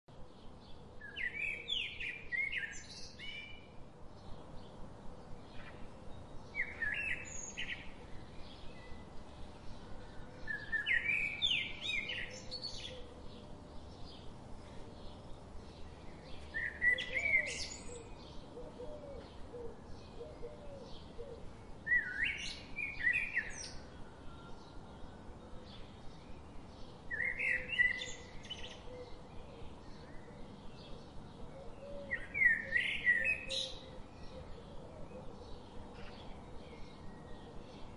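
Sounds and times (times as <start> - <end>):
bird singing chirping phrase: 6.5 - 9.1, 9.7 - 14.3, 15.0 - 37.9.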